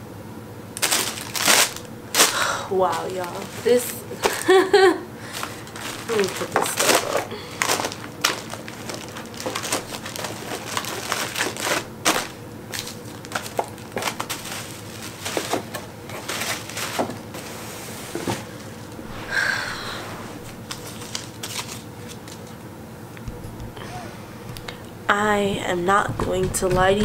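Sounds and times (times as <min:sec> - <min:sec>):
paper and plastic rustling: 0:00.8 - 0:19.3, 0:20.3 - 0:22.6.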